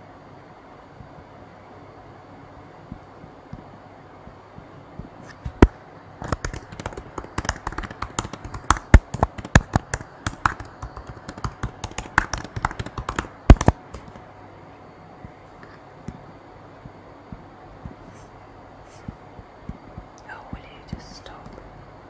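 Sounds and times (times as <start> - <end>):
sharp clicks and knocks: 5.3 - 14.2.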